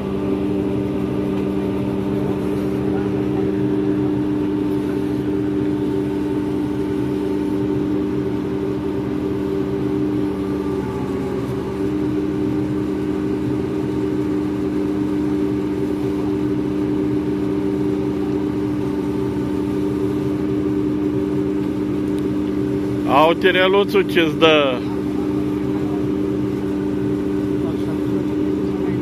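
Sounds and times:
ship machinery humming: 0.0s - 29.0s.

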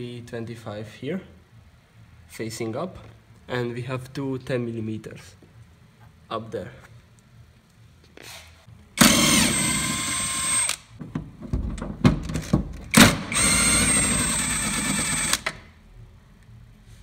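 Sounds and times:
cordless drill whine: 9.0s - 10.8s, 13.3s - 15.5s.

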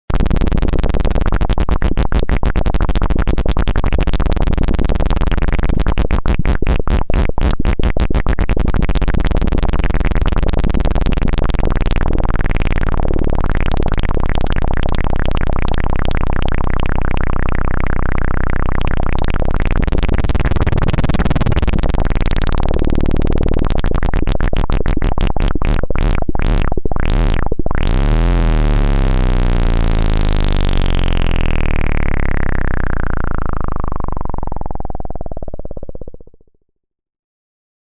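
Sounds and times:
synthesizer noise with flanger sweeps: 11.0s - 36.2s.

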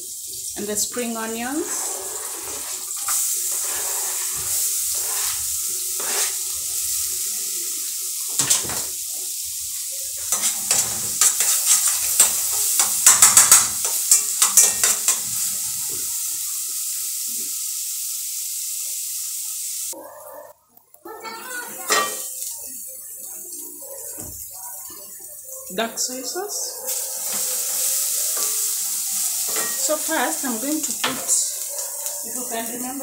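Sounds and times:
butter sizzling in a pot: 0.0s - 20.0s, 21.1s - 33.0s
utensil scraping and clinking pot: 1.6s - 6.4s, 10.2s - 15.5s, 26.8s - 32.3s.

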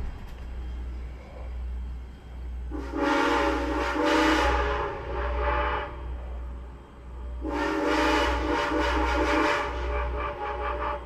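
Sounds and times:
steam whistle blast: 2.8s - 6.0s, 7.4s - 11.0s.

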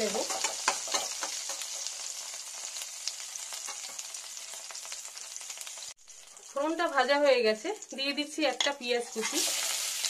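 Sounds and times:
spatula stirring oil: 0.0s - 5.4s, 8.4s - 10.0s
seeds sizzling and popping in oil: 0.0s - 10.0s.

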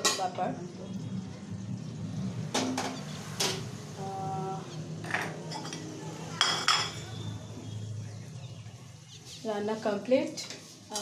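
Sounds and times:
utensils clinking against pots: 0.0s - 0.5s, 5.0s - 7.2s.

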